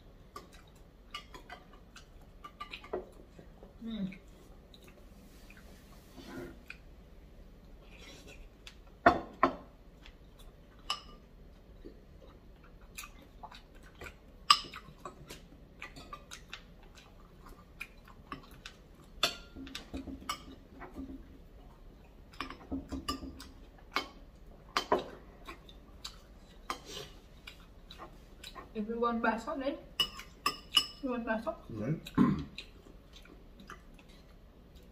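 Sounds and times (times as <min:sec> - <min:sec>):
chewing and mouth sounds: 0:00.3 - 0:05.7, 0:10.0 - 0:28.8, 0:31.6 - 0:34.9.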